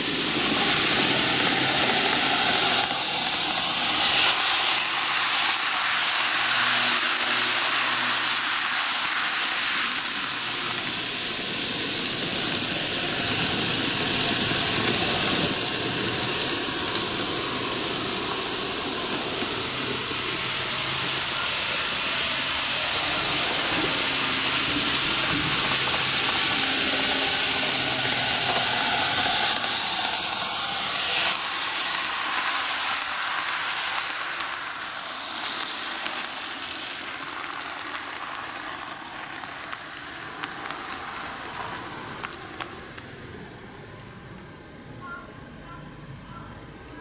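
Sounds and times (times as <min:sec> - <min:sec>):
model train motors whirring: 0:00.0 - 0:47.0
sharp ticks: 0:27.8 - 0:43.2.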